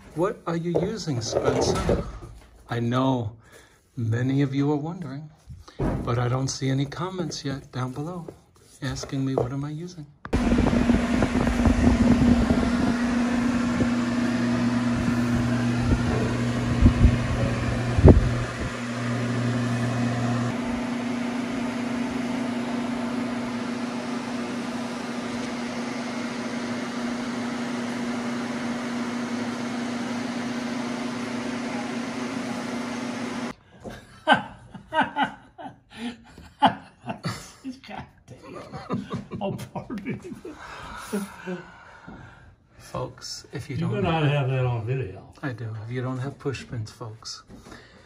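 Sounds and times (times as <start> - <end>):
blower fan humming: 10.3 - 33.6.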